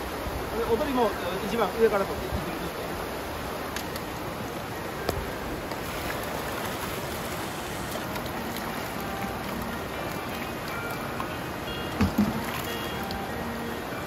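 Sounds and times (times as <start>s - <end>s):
river water rushing over stones: 0.0s - 14.0s
brief knock: 12.0s - 12.4s.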